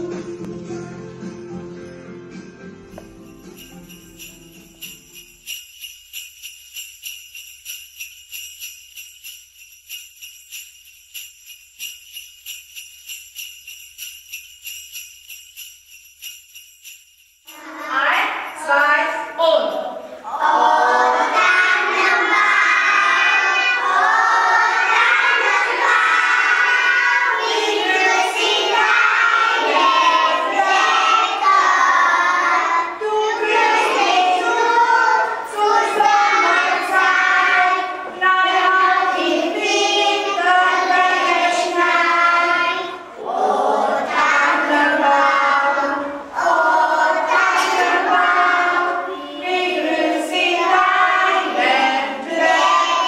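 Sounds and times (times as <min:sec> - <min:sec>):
children singing a carol: 0:17.5 - 0:18.5, 0:20.1 - 0:53.0.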